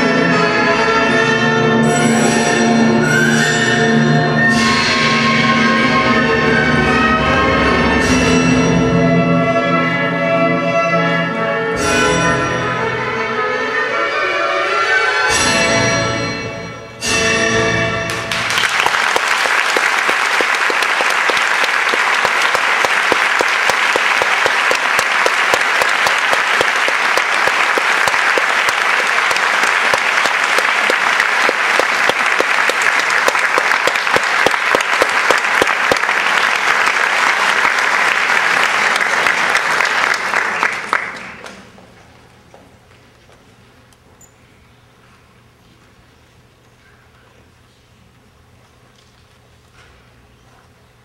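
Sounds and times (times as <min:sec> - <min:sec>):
orchestral music: 0:00.0 - 0:40.3
audience applauding: 0:18.1 - 0:41.8.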